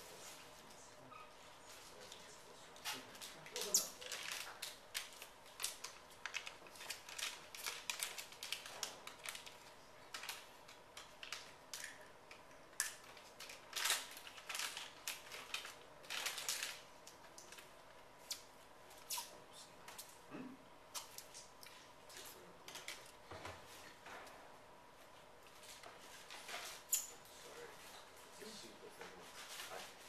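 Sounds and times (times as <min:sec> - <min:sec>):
faint electrical hum: 0:00.0 - 0:30.0
objects rustling and clicking: 0:01.7 - 0:17.7.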